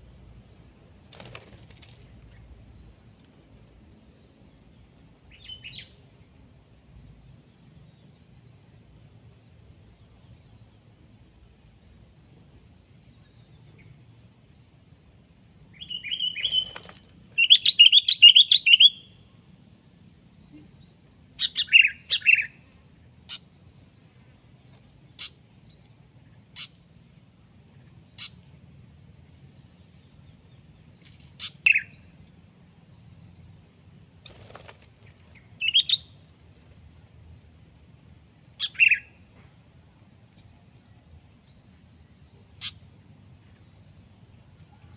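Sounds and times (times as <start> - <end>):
bulbul calling: 15.8 - 19.0, 31.4 - 32.0, 38.6 - 39.1.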